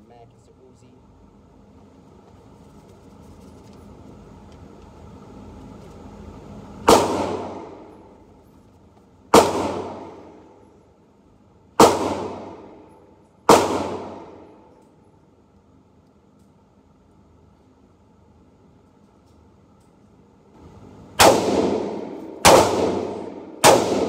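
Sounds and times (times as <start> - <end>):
gunshots reverberating indoors: 6.8 - 8.3, 9.3 - 11.0, 11.7 - 15.2, 21.2 - 24.0.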